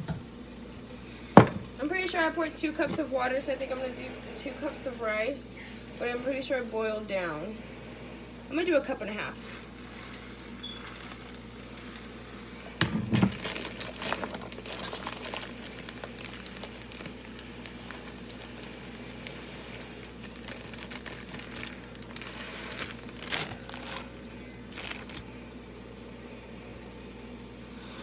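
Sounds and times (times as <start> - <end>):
plastic bag crinkling: 9.9 - 12.2, 12.8 - 25.5.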